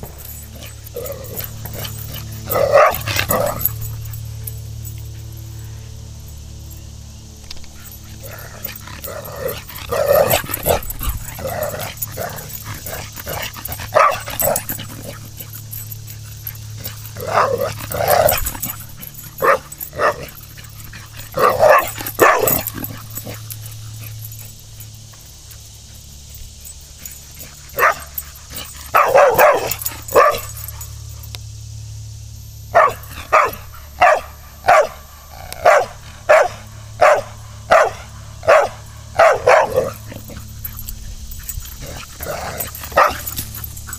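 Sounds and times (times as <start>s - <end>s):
dog barking: 0.6s - 3.8s, 8.2s - 15.6s, 16.9s - 20.7s, 21.3s - 23.4s, 27.6s - 30.7s, 32.7s - 40.6s, 41.8s - 43.7s.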